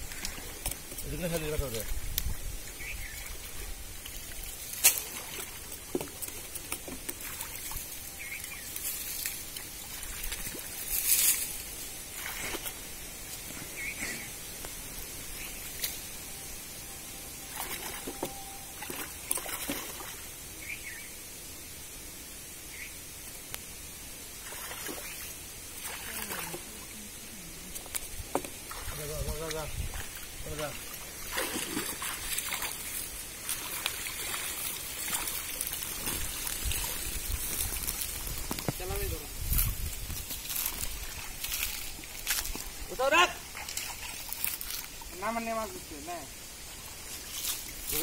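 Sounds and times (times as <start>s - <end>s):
muddy water sloshing and splashing: 0.0s - 12.9s, 17.4s - 20.3s, 24.4s - 27.0s, 27.8s - 38.8s, 39.4s - 45.2s.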